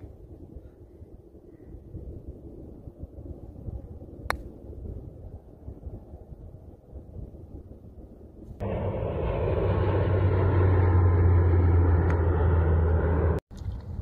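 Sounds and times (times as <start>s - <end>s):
low engine drone: 8.6s - 13.8s.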